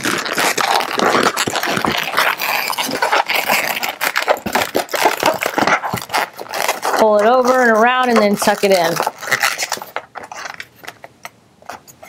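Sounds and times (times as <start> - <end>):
balloons squeaking and rubbing: 0.0 - 12.0.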